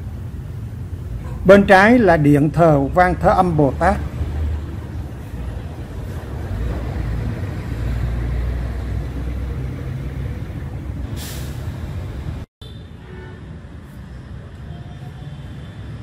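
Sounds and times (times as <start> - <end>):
road traffic rumble: 0.0 - 16.0
brief hiss: 11.2 - 11.7.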